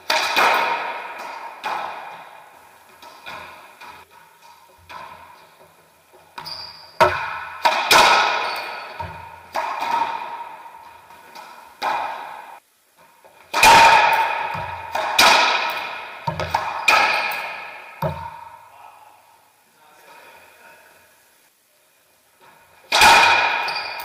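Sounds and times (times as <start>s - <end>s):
racquetball cracking off racquets: 0.0s - 5.7s, 6.3s - 12.6s, 13.3s - 18.6s, 22.5s - 24.0s.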